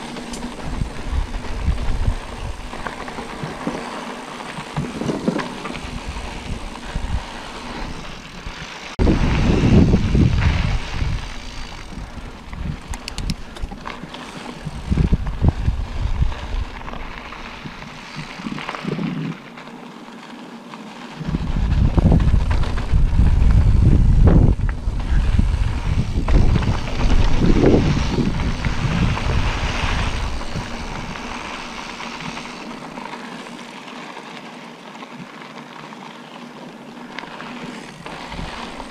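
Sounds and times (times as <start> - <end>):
wind rushing over microphone: 0.0 - 3.6, 4.7 - 13.8, 14.5 - 19.4, 21.2 - 32.9, 37.9 - 38.9
bicycle tyres on dirt track: 0.0 - 38.9.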